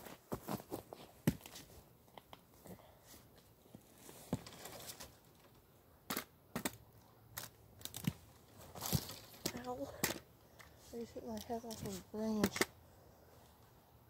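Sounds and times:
scuffs: 0.0 - 1.8
rustling in tree branches: 3.1 - 5.7, 7.3 - 12.5.

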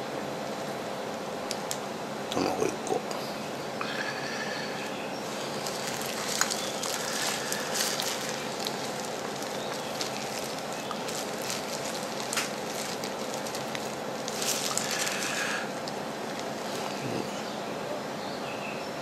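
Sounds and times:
plastic glove crinkling: 5.2 - 17.2
dry soil crumbling: 5.2 - 17.3.

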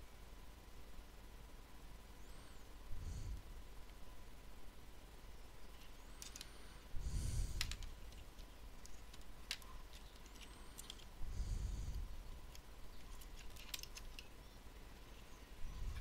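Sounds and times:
breathy rushes of noise: 6.5 - 7.9.

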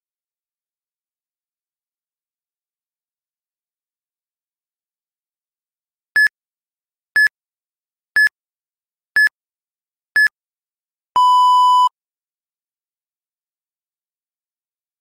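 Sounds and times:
short high beeps: 11.2 - 11.9.

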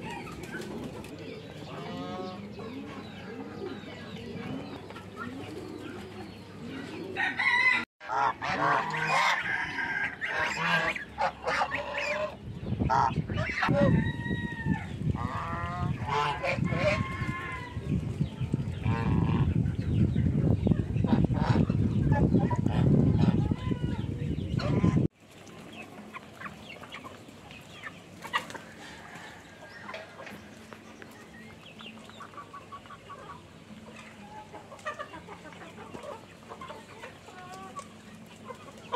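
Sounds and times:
poultry clucking: 0.0 - 38.9
poultry honking: 7.2 - 13.9.

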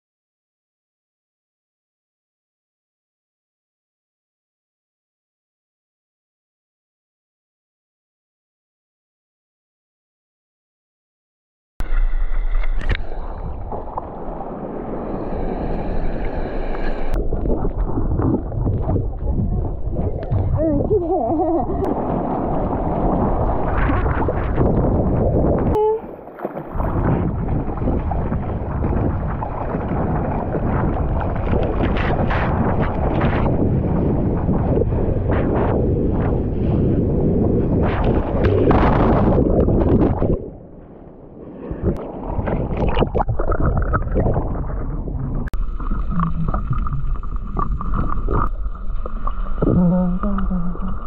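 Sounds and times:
water rushing and splashing: 11.8 - 35.3, 37.8 - 51.0
muffled underwater gurgle: 11.8 - 40.9, 41.5 - 51.0
wind buffeting microphone: 12.7 - 26.0, 26.6 - 50.7.

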